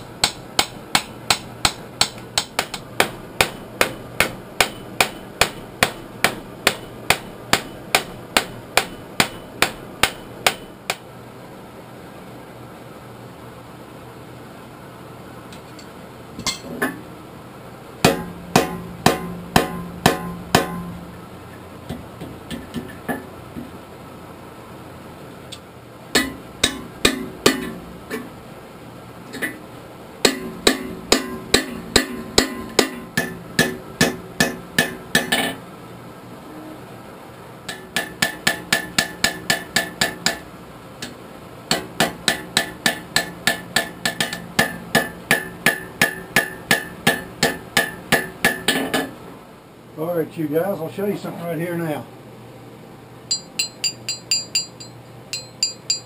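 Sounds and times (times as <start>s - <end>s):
hammer striking steel on anvil: 0.0s - 11.0s, 16.4s - 17.1s, 18.0s - 21.0s, 26.2s - 28.3s, 30.2s - 35.6s, 37.7s - 49.1s, 53.3s - 56.0s.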